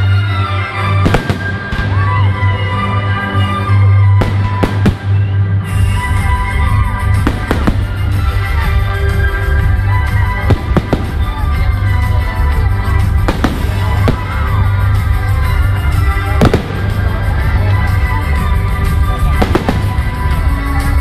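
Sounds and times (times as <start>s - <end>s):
music playing: 0.0s - 21.0s
fireworks bangs: 1.0s - 2.3s, 4.2s - 5.4s, 7.1s - 8.8s, 10.4s - 11.7s, 13.0s - 14.7s, 16.3s - 17.4s, 19.3s - 20.4s.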